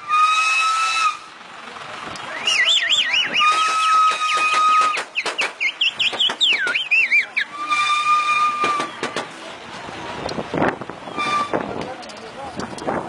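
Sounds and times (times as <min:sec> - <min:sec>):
shrill warbling whistle: 0:02.3 - 0:08.9
clicks and knocks: 0:03.5 - 0:06.9.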